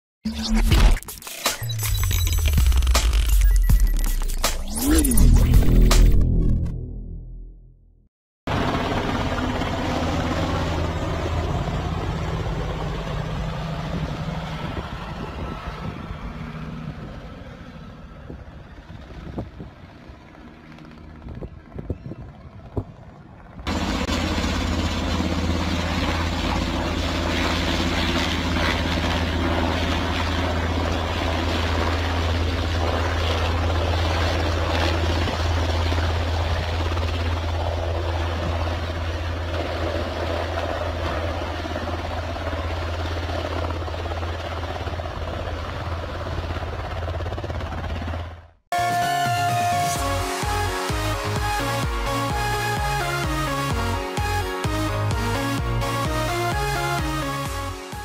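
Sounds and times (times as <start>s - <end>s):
helicopter flying overhead: 8.5s - 58.0s.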